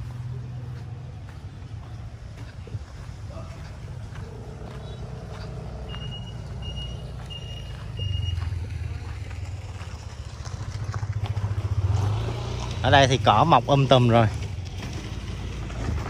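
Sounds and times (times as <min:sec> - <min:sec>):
vehicle engine rumbling: 0:00.0 - 0:16.0
high electronic beeps: 0:05.8 - 0:08.6.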